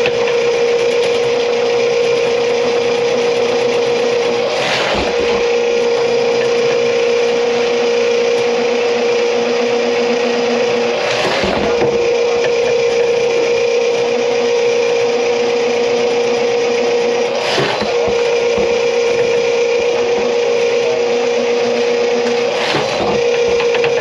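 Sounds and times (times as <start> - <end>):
drain cleaning machine motor hum: 0.0 - 24.0.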